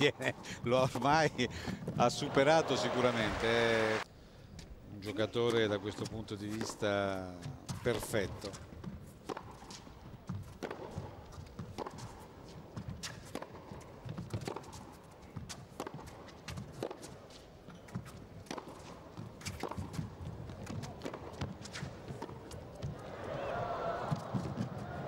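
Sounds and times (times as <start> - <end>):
tennis ball hit by rackets: 9.2 - 14.8, 15.4 - 17.2, 17.8 - 23.0.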